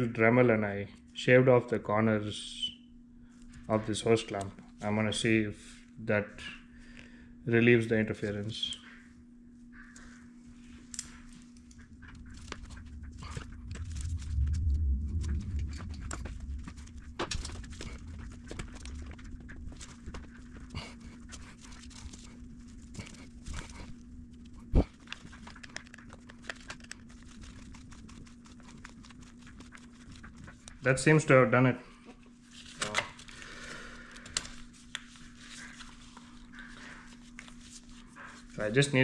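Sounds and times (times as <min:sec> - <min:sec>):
steady low hum: 0:00.0 - 0:39.0
handling rustles and clicks: 0:10.0 - 0:30.9, 0:32.5 - 0:33.4
low rumble of pushing: 0:11.8 - 0:25.0.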